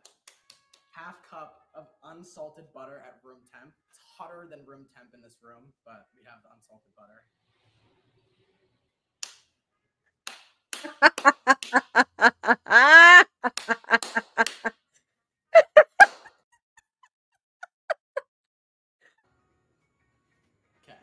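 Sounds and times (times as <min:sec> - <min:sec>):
woman laughing hard: 0:10.8 - 0:14.7, 0:15.6 - 0:16.3, 0:17.6 - 0:18.2.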